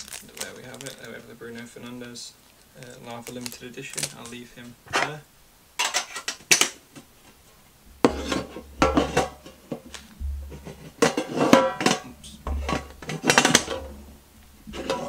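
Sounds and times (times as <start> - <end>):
metal tins clattering: 5.8 - 6.8, 8.0 - 14.1, 14.7 - 15.0
tins bumping on tabletop: 8.0 - 14.0.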